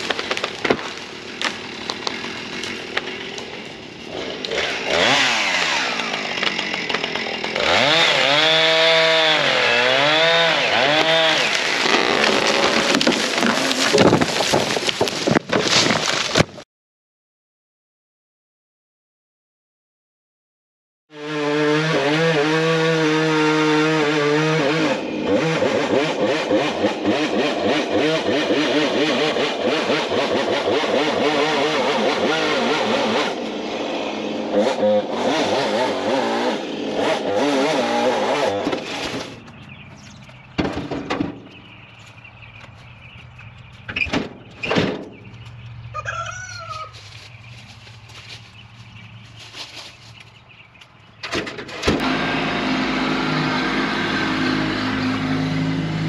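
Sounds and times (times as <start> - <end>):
chainsaw cutting wood: 0.0 - 16.5, 21.1 - 39.6, 51.3 - 56.0.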